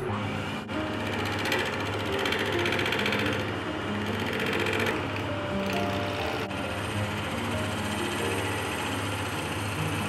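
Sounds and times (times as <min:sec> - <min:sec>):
background music: 0:00.0 - 0:10.0
lathe motor hum: 0:00.0 - 0:10.0
turning tool cutting wood: 0:00.0 - 0:10.0.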